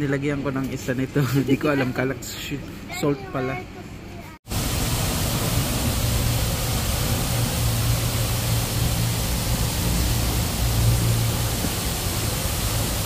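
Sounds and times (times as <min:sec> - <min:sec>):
fountain water rushing hiss: 0:04.5 - 0:13.0.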